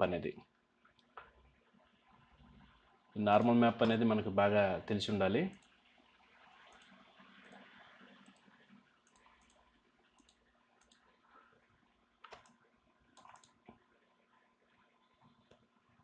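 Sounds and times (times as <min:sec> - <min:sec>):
faint computer mouse clicks: 0:06.6 - 0:09.6, 0:10.2 - 0:11.2, 0:12.2 - 0:13.8.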